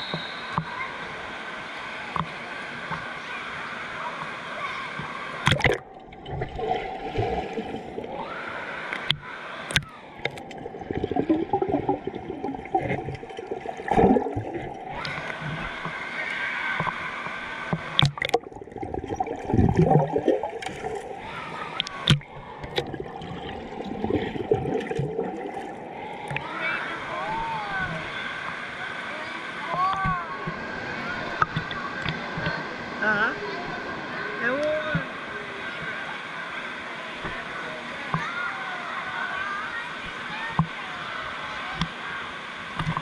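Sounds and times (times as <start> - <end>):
water rushing and gurgling: 0.0 - 43.0
sharp knocks and splashes: 5.4 - 7.7, 17.7 - 21.2, 21.8 - 26.4.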